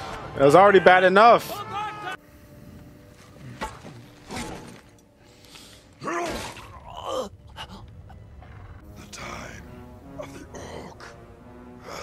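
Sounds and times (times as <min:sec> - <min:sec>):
person yelling: 0:00.8 - 0:02.2.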